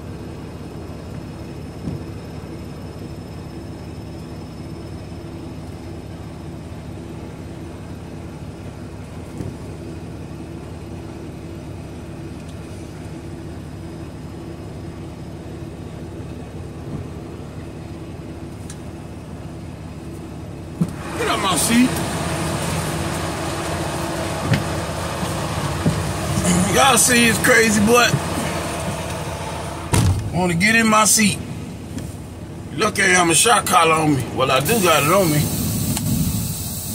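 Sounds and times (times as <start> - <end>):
diesel engine idling: 0.0 - 36.9.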